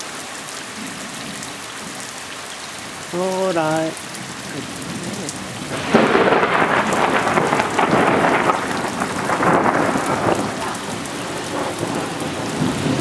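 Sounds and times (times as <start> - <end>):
heavy rain: 0.0 - 13.0
thunder rumbling and crackling: 4.0 - 13.0.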